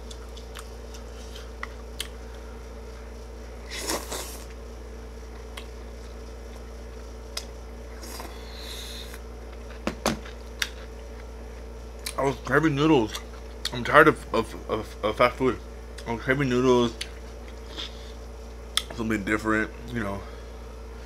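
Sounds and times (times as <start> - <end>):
air conditioner hum: 0.0 - 21.0.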